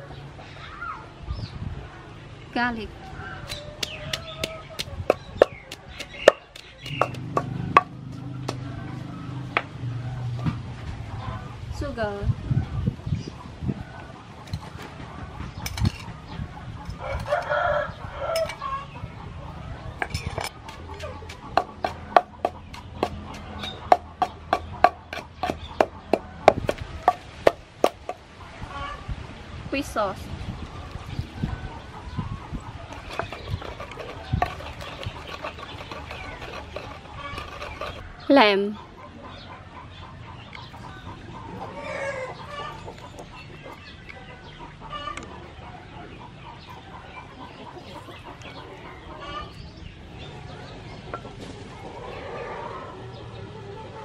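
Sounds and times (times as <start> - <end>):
chickens clucking: 3.0 - 11.6, 12.4 - 29.2, 30.6 - 54.0
wooden pestle pounding in mortar: 3.5 - 8.7, 20.6 - 28.2, 32.9 - 38.0.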